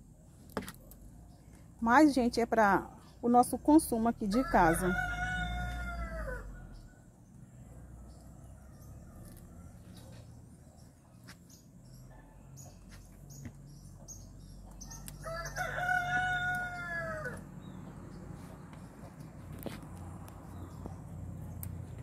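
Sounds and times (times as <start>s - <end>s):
rooster crowing: 4.3s - 6.9s, 14.9s - 17.4s.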